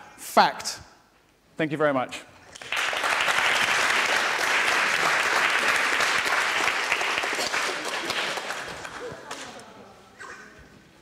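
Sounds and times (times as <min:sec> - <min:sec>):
audience applauding: 0:02.6 - 0:09.5.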